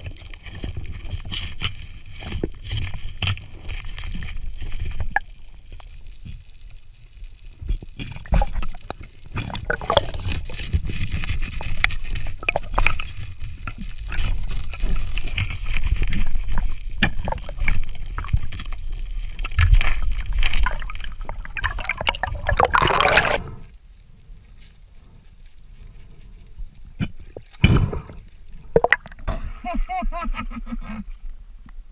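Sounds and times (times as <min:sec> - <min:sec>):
bubbling rush: 0:08.0 - 0:23.6, 0:27.6 - 0:29.3
water rushing underwater: 0:08.1 - 0:23.7, 0:27.4 - 0:29.4.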